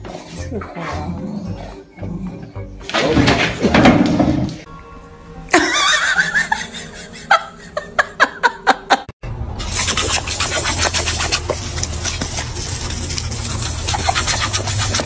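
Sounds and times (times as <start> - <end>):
person laughing: 5.5 - 9.1
water spraying from hose: 9.6 - 15.0.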